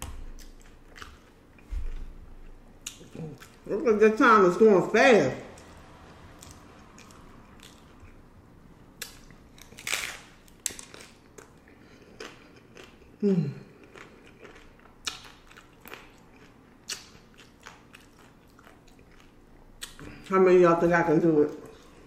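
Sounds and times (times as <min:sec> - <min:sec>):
taco shell crunching: 0:09.0 - 0:13.2, 0:13.8 - 0:20.0.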